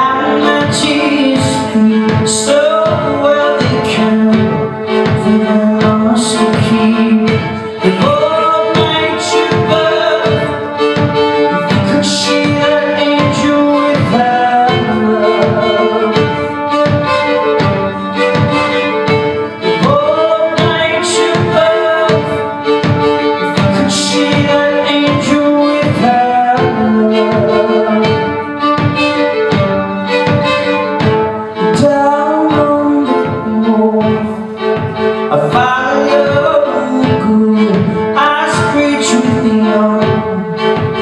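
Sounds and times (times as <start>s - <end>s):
man singing: 0.0s - 16.8s, 18.1s - 29.1s, 31.5s - 41.0s
fiddle playing folk rhythm: 0.0s - 41.0s
percussive beat: 0.0s - 41.0s.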